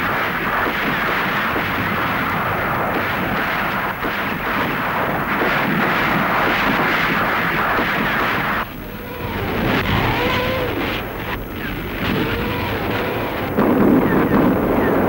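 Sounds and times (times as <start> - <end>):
rocket launcher salvo rushing: 0.0 - 14.9
gunfire: 0.0 - 15.0
tank engines rumbling: 8.6 - 15.0.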